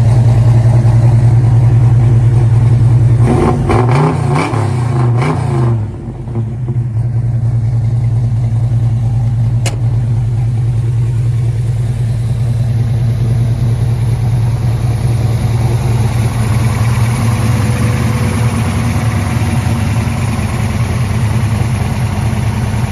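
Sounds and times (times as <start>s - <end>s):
truck engine idling: 0.0s - 3.7s, 5.8s - 22.9s
sharp click: 9.6s - 10.0s.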